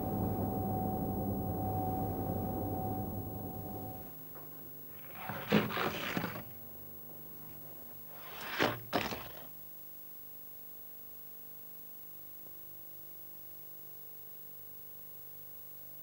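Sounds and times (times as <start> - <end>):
faint steady hum: 0.0 - 16.0
object rolling down a track: 5.0 - 6.6, 7.9 - 9.5.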